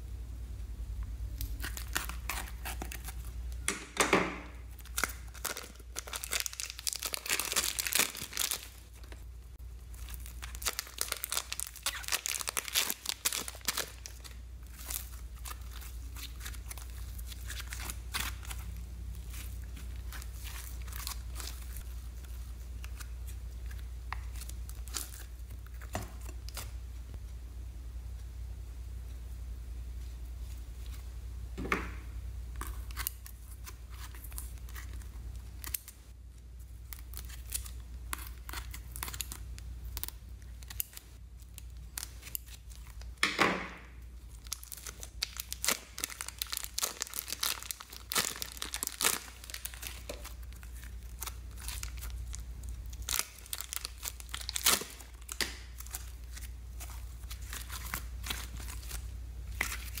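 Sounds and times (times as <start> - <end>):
slime squelch: 4.5 - 27.1, 43.8 - 60.0
slime crackling and popping: 4.6 - 9.2, 9.8 - 18.7, 43.9 - 60.0.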